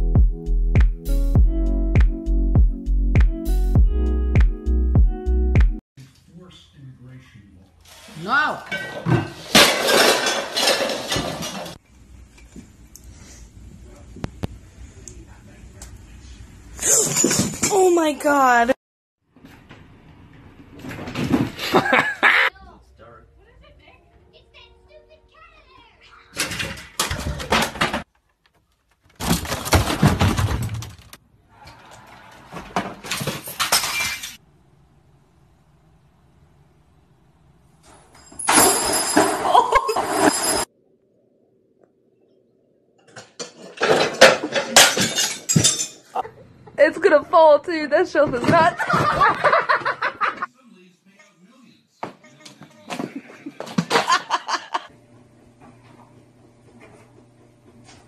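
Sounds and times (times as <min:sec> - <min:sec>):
vase hitting floor and shattering: 0:08.7 - 0:11.8, 0:29.2 - 0:31.2, 0:32.6 - 0:34.4, 0:38.1 - 0:40.7, 0:43.2 - 0:46.0
pieces crashing and clattering: 0:08.8 - 0:11.8, 0:29.0 - 0:31.2, 0:32.6 - 0:34.4, 0:38.1 - 0:40.7, 0:43.1 - 0:46.1.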